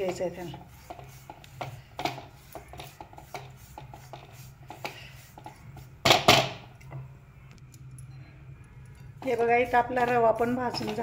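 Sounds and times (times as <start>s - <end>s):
low steady hum: 3.8s - 11.0s
spatula scraping metal frying pan: 9.0s - 11.0s.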